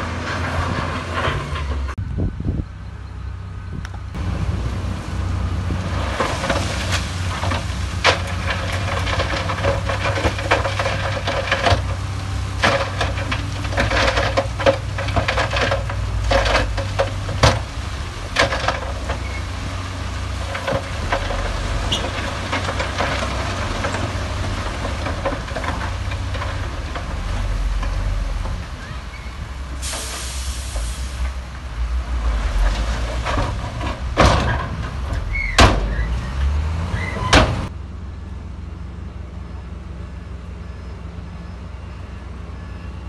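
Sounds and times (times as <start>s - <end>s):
diesel engine drone: 0.0s - 43.0s
rock and metal clattering: 5.9s - 28.8s, 32.4s - 36.0s.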